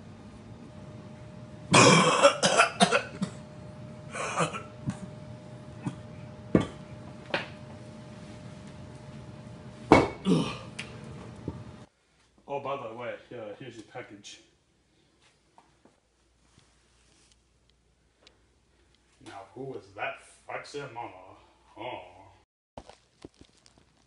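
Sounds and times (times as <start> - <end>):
faint steady hum: 0.0 - 22.4
man grunting and straining: 10.2 - 10.8.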